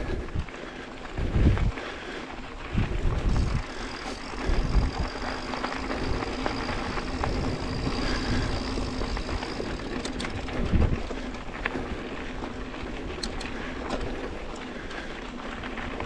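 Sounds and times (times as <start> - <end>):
bike tyres on dirt trail: 0.0 - 16.0
wind on microphone: 1.2 - 1.8, 2.7 - 11.2
faint steady whine: 2.8 - 15.2.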